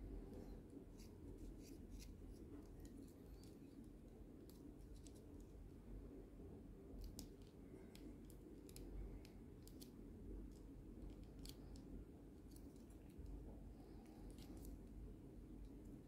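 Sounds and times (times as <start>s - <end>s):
low room hum: 0.0s - 16.0s.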